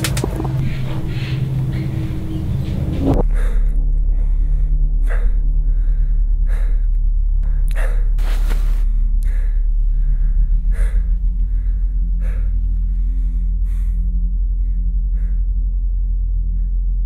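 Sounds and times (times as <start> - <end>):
loud low drone: 0.0 - 17.0
person gasping for breath: 3.3 - 15.6.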